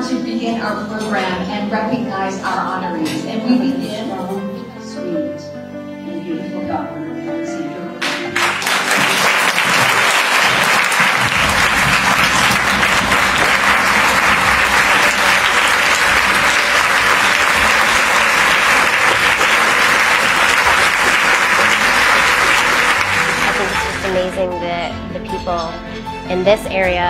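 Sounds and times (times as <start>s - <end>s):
audience clapping: 8.0s - 24.4s.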